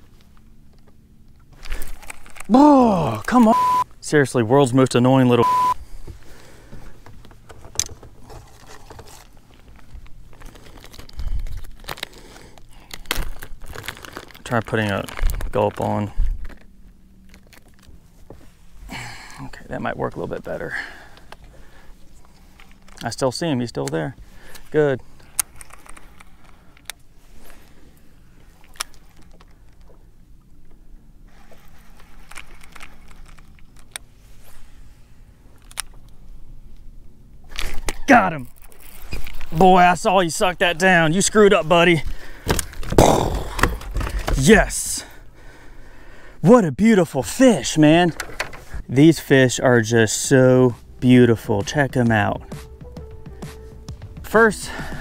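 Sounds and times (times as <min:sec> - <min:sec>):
plastic pouch crinkling: 0:01.6 - 0:03.4, 0:08.3 - 0:16.7
boat motor humming: 0:50.3 - 0:55.0.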